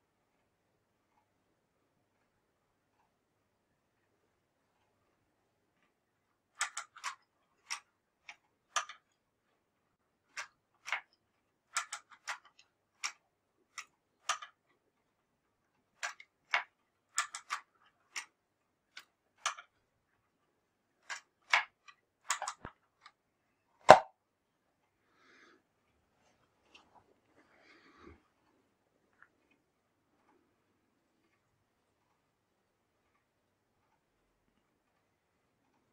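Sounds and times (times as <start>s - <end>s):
wooden mechanism clicking: 0.3s - 23.2s.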